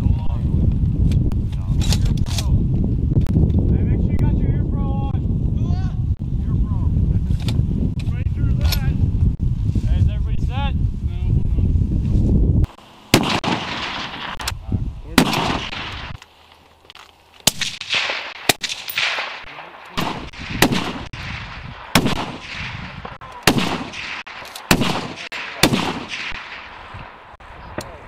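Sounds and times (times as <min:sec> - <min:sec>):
rifle shots echoing: 0:13.1 - 0:14.5, 0:15.1 - 0:16.2, 0:17.4 - 0:27.4.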